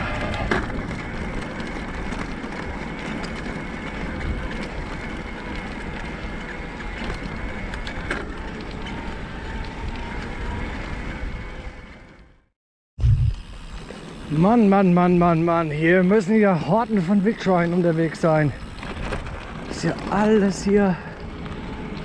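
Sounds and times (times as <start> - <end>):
wind on microphone: 13.0 - 13.5
tyres on gravel: 13.4 - 22.0.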